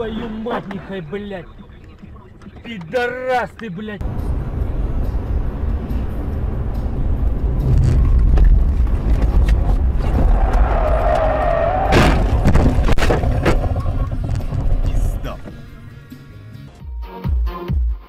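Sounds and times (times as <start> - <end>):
car engine and road rumble: 0.0 - 16.8
tyres squealing: 9.5 - 15.8
car crashing into guardrail: 11.5 - 14.2.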